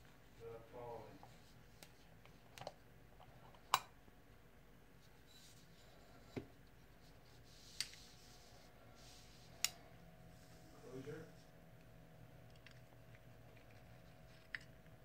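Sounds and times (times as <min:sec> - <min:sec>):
faint rubbing: 0:05.0 - 0:09.6.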